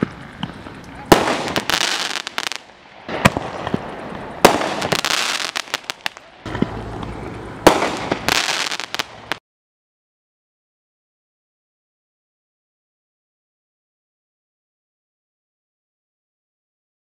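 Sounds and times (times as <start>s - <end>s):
firework shell bangs: 0.0s - 3.8s, 4.4s - 6.7s, 7.6s - 9.1s
low rumble of shell launch: 6.4s - 8.3s.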